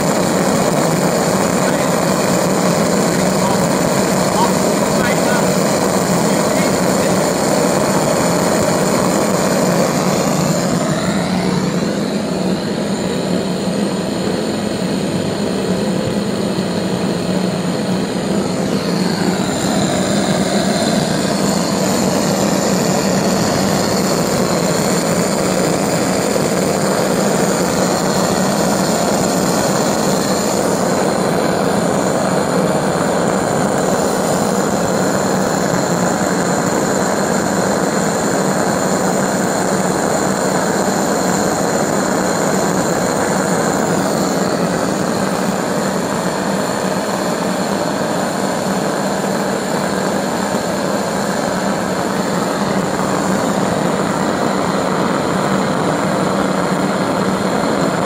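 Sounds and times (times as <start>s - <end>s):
engine combustion roar: 0.0s - 58.0s
low buzzing hum: 0.0s - 58.0s.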